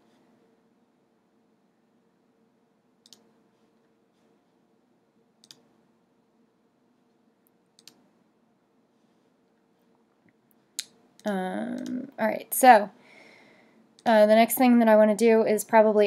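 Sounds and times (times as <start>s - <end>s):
faint steady hum: 0.0s - 16.0s
computer mouse clicks: 3.0s - 3.3s, 5.4s - 5.7s, 7.5s - 8.1s, 10.8s - 12.2s.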